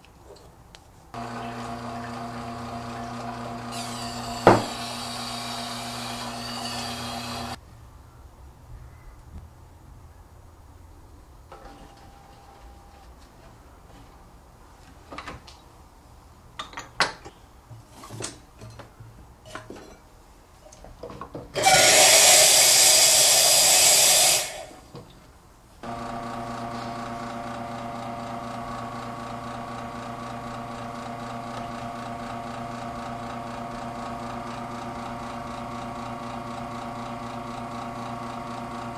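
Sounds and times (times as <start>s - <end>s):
espresso machine hiss: 1.2s - 7.6s, 21.6s - 24.8s, 25.9s - 32.4s
espresso machine pump humming: 1.2s - 7.6s, 21.6s - 24.8s, 25.8s - 38.9s
espresso pouring: 1.2s - 7.6s.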